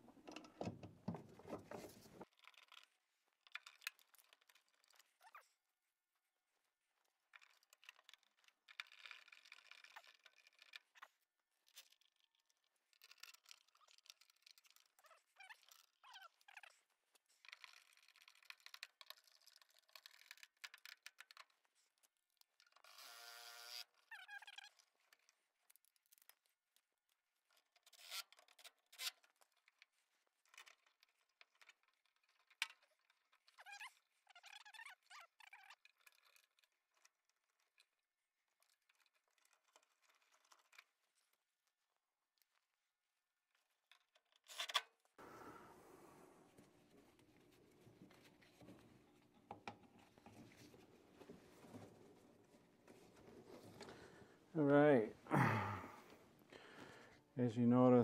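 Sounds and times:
rubber tubing squeaks: 0:13.0 - 0:21.9, 0:22.6 - 0:25.5, 0:27.7 - 0:29.5, 0:30.4 - 0:37.6.

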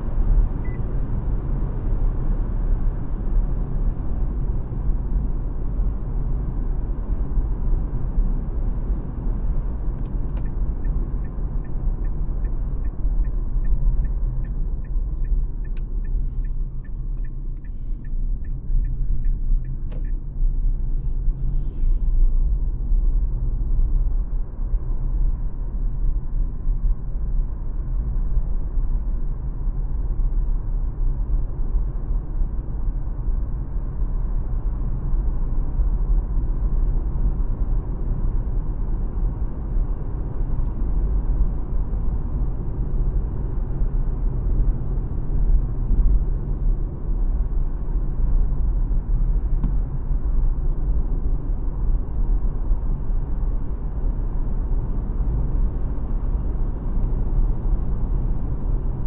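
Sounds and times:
road and tyre rumble: 0:00.0 - 0:59.0
turn signal ticking: 0:09.9 - 0:21.3.

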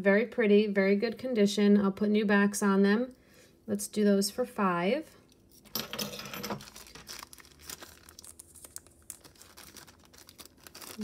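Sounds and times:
plastic bag crinkling: 0:06.4 - 0:11.0.

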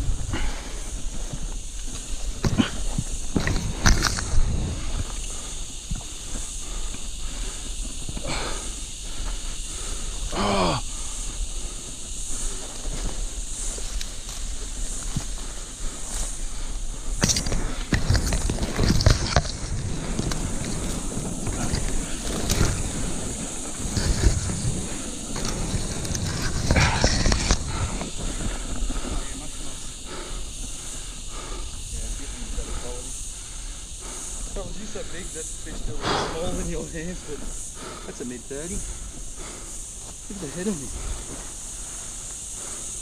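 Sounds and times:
steady high hiss: 0:00.0 - 0:43.0
grass rustling underfoot: 0:10.9 - 0:43.0.

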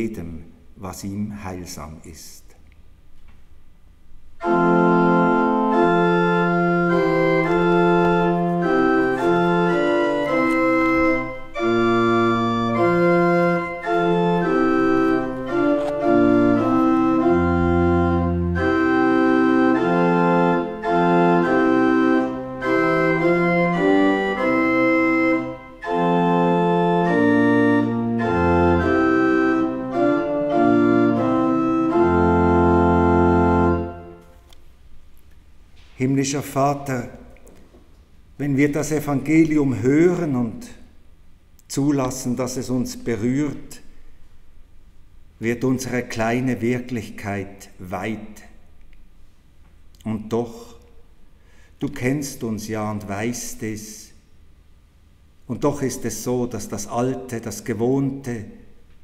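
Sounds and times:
pipe organ playing hymn: 0:04.2 - 0:34.5, 0:38.4 - 0:40.8, 0:41.8 - 0:44.0, 0:55.6 - 0:58.6.

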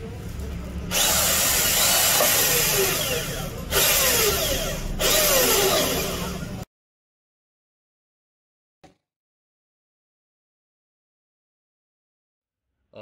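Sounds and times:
electric drill with hole saw: 0:00.9 - 0:06.6
saw squealing: 0:00.9 - 0:06.6.

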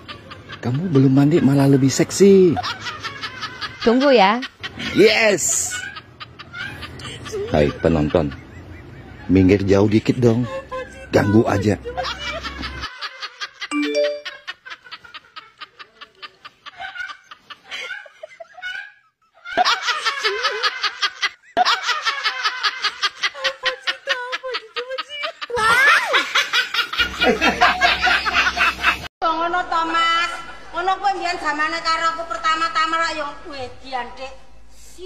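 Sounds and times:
rapid laughter: 0:00.0 - 0:13.7, 0:14.4 - 0:29.1
three-note chime: 0:13.7 - 0:14.4.

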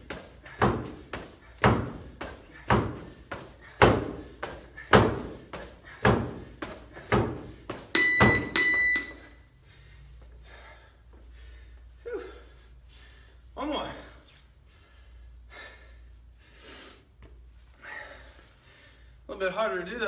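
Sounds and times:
sneakers landing on gym floor: 0:00.0 - 0:08.6
electronic timer beeps: 0:08.0 - 0:09.5.

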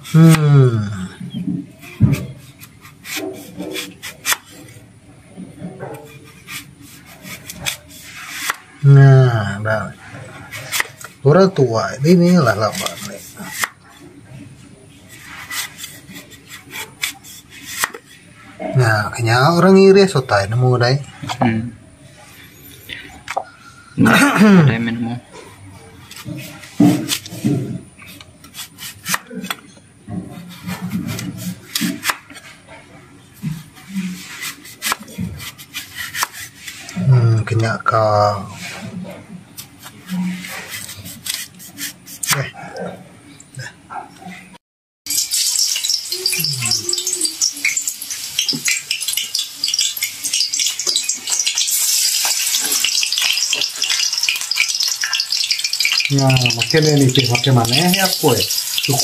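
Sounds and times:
slices frying in hot oil: 0:10.5 - 0:13.8, 0:33.6 - 0:37.7, 0:45.1 - 0:59.0
knife slicing on wooden board: 0:34.1 - 0:36.9.

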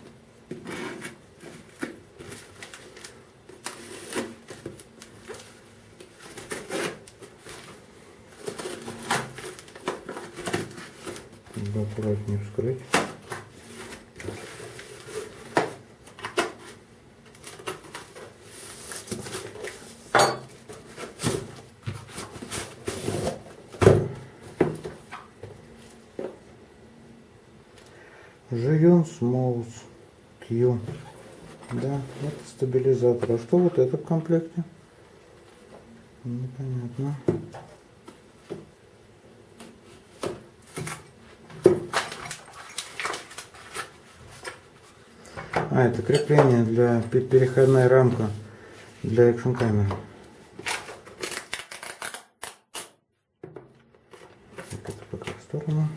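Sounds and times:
cardboard scraping and rustling: 0:20.7 - 0:23.8
knife slitting packing tape: 0:50.6 - 0:53.0.

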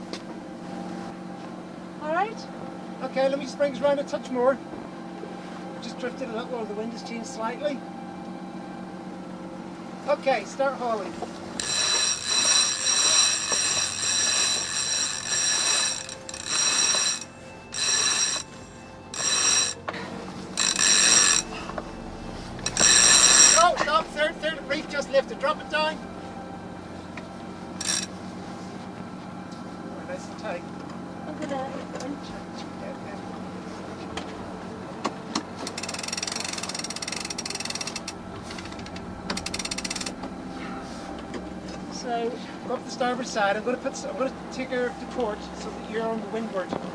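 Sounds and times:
winch pawls clicking: 0:11.6 - 0:18.5, 0:35.6 - 0:40.2
rope squealing through fittings: 0:11.6 - 0:19.8, 0:20.5 - 0:21.7, 0:22.5 - 0:24.3.

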